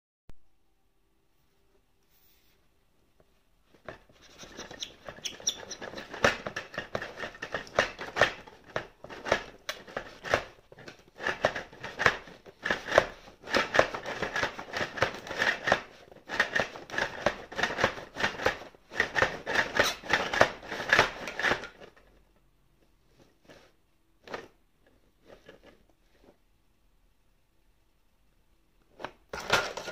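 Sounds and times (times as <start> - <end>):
blocks clattering and clicking: 3.8 - 22.0.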